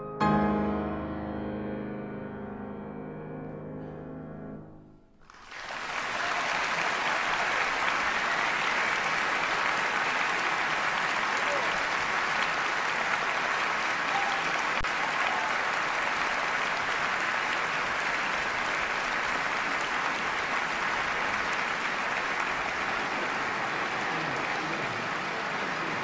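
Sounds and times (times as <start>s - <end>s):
audience applauding: 5.2s - 26.0s.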